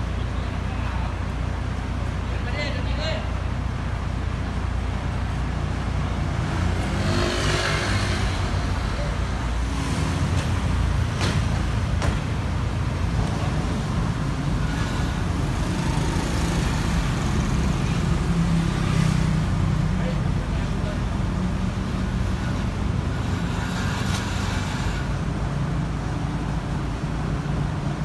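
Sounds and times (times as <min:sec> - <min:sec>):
street traffic: 0:00.0 - 0:28.0
sharp knocks: 0:11.2 - 0:12.4.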